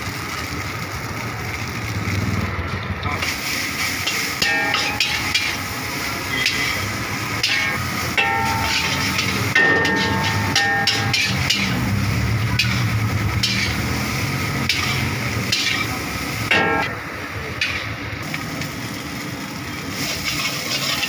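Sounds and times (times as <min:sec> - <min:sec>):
metal spatula clanking on wok: 0:04.0 - 0:05.7, 0:06.3 - 0:14.0, 0:14.6 - 0:18.0.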